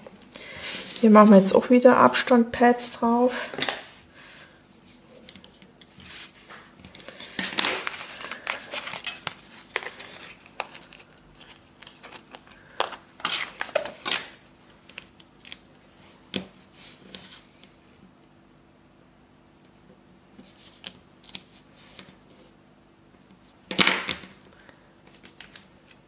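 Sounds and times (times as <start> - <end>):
paper rustling: 6.0 - 15.1.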